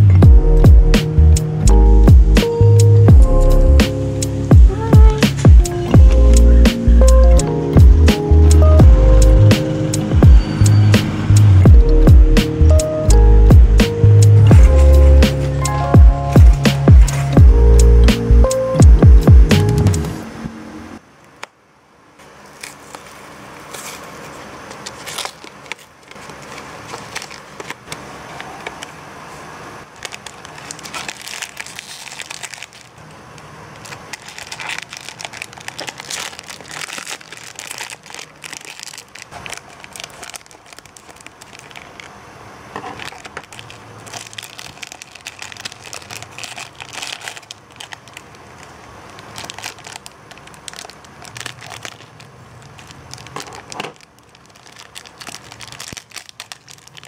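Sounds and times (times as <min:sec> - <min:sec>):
foil and plastic crinkling: 0:04.2 - 0:09.0, 0:14.4 - 0:17.7, 0:22.2 - 0:57.0.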